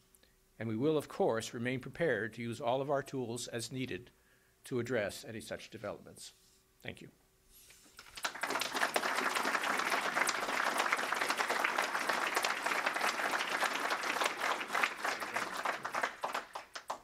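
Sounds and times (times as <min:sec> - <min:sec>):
audience applauding: 0:08.0 - 0:17.0.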